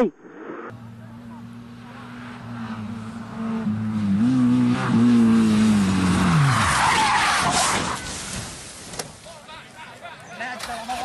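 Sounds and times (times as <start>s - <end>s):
rally car engine revving: 0.7s - 8.2s
tyres skidding: 0.8s - 11.0s.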